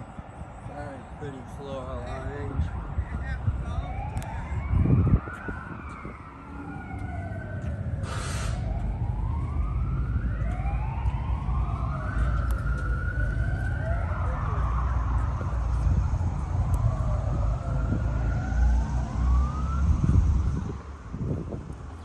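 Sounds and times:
siren wailing: 0.0 - 21.5
brief hiss: 8.0 - 8.6.

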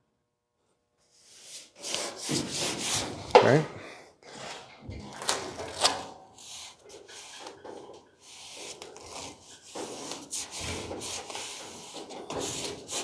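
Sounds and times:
gloves rubbing tape on metal: 1.2 - 3.6, 5.2 - 13.0.

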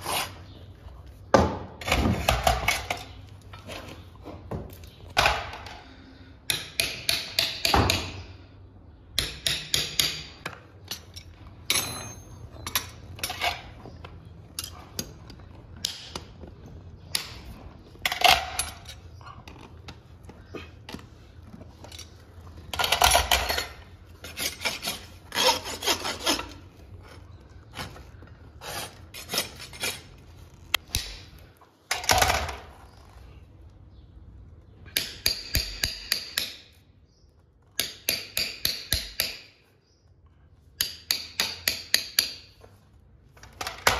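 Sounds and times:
rasp filing hoof: 24.2 - 26.7.

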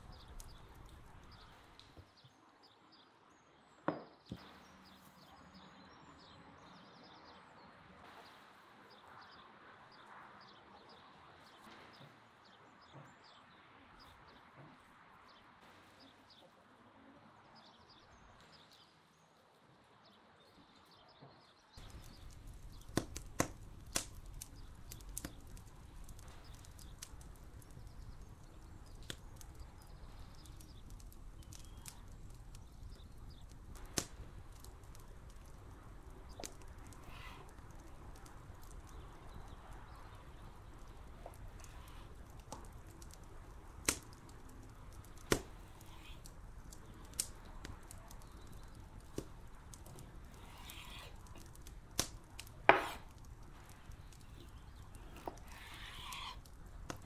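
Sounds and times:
low background noise: 0.0 - 57.0
knocks: 3.9 - 4.2
sharp clicks: 21.8 - 57.0.

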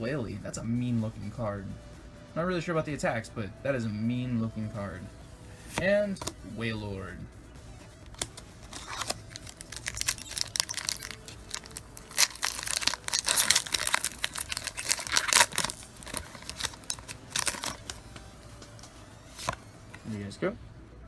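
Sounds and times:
foil wrapper crinkling and tearing: 8.2 - 18.2.

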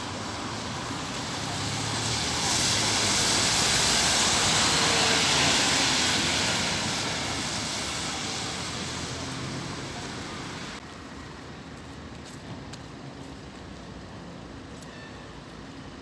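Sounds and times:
bus engine passing: 0.0 - 10.8
tyres hissing on wet road: 0.0 - 11.5.

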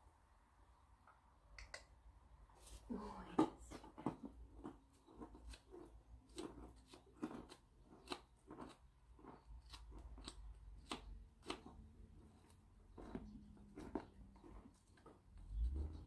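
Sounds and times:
hoof pick scraping dirt: 11.5 - 16.0.

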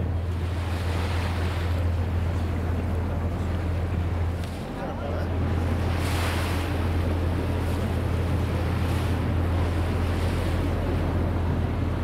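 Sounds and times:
boat engine droning: 0.0 - 12.0
water rushing past hull: 0.0 - 12.0.

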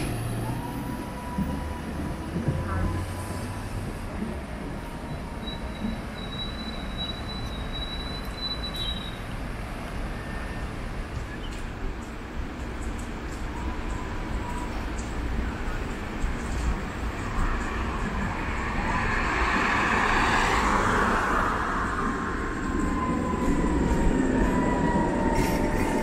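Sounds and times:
high whine from tram: 0.0 - 26.0
trams rolling past: 0.0 - 26.0.

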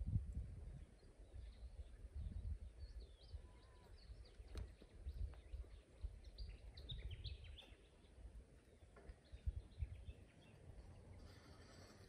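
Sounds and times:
gusty low rumble: 0.0 - 2.9
birds chirping and calling: 0.9 - 12.0.

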